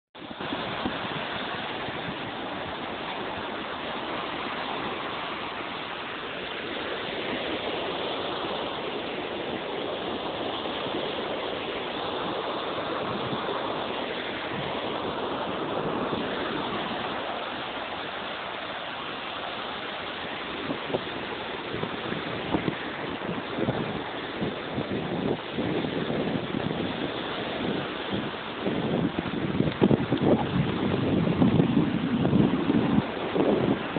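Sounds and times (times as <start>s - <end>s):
small waves breaking on beach: 0.2s - 33.9s.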